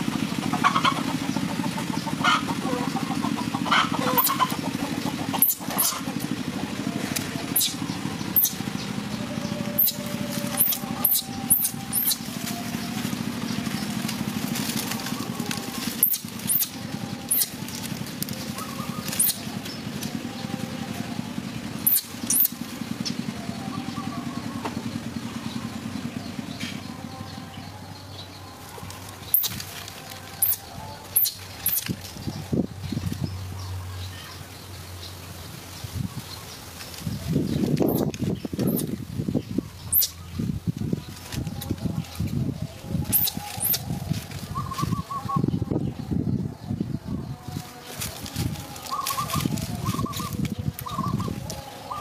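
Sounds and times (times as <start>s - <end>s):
low engine hum: 0.0s - 52.0s
dry palm fronds crackling: 5.4s - 23.0s, 28.6s - 33.1s, 35.6s - 39.4s, 40.0s - 45.4s, 47.4s - 52.0s.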